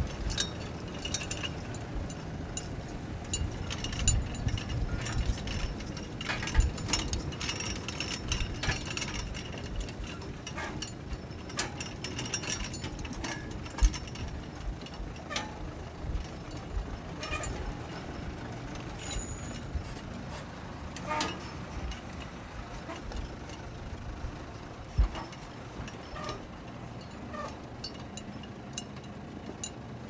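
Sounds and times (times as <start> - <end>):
metallic clicking and clinking: 0.0 - 23.7.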